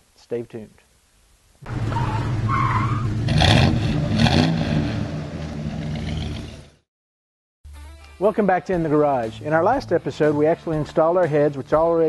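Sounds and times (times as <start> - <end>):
car engine revving: 1.6 - 6.8
tire squeal: 1.7 - 4.4.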